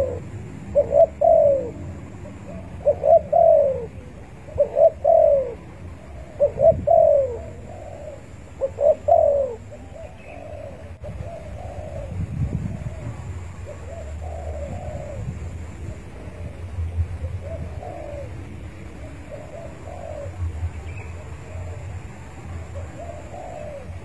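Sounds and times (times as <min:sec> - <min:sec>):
dove cooing: 0:00.0 - 0:24.0
low rumble: 0:10.9 - 0:24.0.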